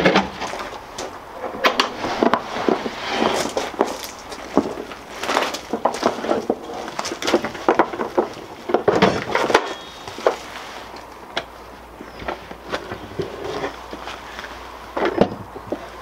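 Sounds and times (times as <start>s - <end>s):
footsteps on gravel: 0.4s - 8.7s.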